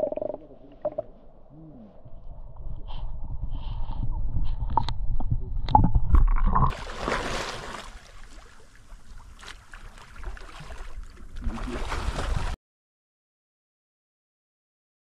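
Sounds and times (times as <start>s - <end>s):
water splashing from swimming: 6.3s - 12.6s.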